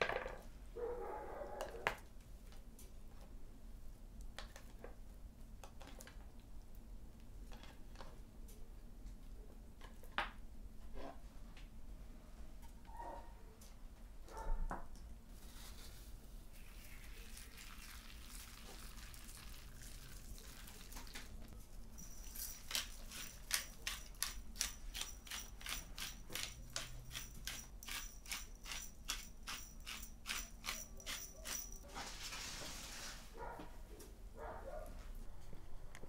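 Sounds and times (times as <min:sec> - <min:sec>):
pepper mill grinding clicks: 0:22.2 - 0:31.8.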